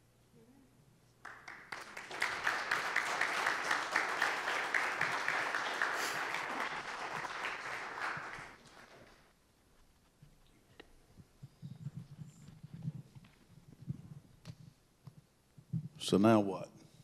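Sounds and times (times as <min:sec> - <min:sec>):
congregation applauding: 0:01.2 - 0:09.3.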